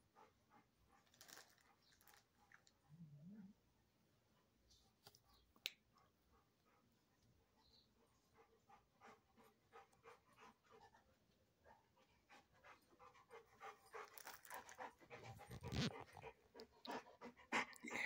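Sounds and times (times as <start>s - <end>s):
dog panting: 0.0s - 1.1s, 6.0s - 18.0s.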